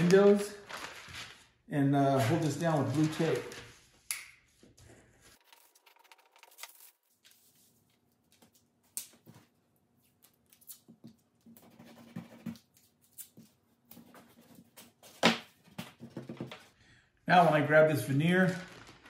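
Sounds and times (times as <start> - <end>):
paper rustling: 0.0 - 1.6, 2.2 - 8.6, 18.2 - 19.0.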